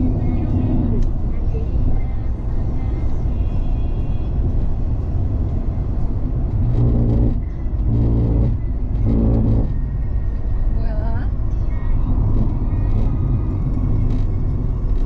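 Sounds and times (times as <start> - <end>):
car cabin road and engine rumble: 0.0 - 15.0
short low buzzing hums: 6.6 - 9.9.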